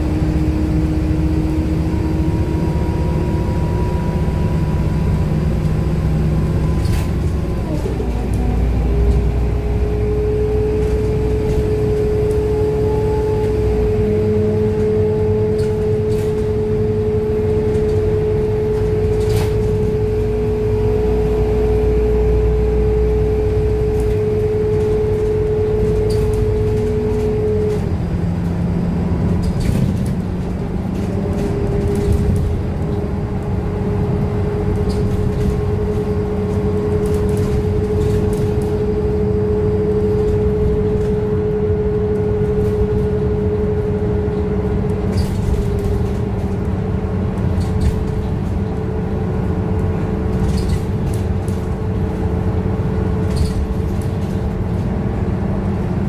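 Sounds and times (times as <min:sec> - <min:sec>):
bus engine drone: 0:00.0 - 0:56.0
bus whine: 0:00.0 - 0:56.0
road noise: 0:00.0 - 0:56.0.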